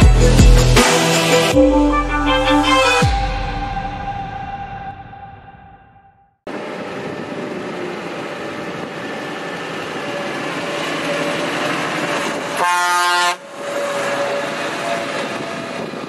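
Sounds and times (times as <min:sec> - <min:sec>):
tractor horn blast: 0:01.6 - 0:03.3, 0:12.6 - 0:13.5.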